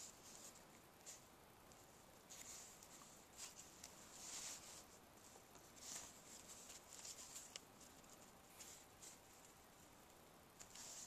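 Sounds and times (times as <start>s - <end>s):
cardstock rustling under fingers: 0.0s - 9.6s.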